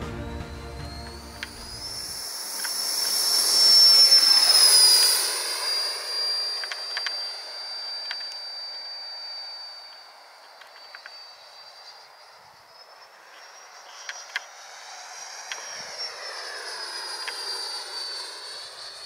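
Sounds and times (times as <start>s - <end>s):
music: 0.0s - 2.1s
model jet fan whine: 0.0s - 19.0s.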